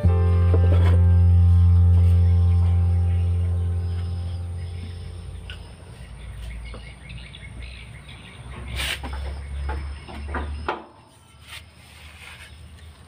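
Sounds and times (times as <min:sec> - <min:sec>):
background music: 0:00.0 - 0:05.8
low steady hum: 0:00.0 - 0:07.8
birds chirping: 0:00.0 - 0:13.0.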